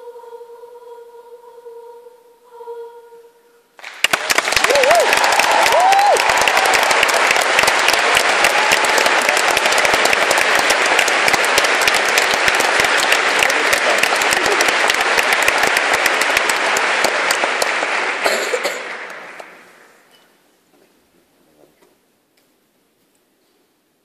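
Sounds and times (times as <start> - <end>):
audience applauding: 3.8 - 20.0.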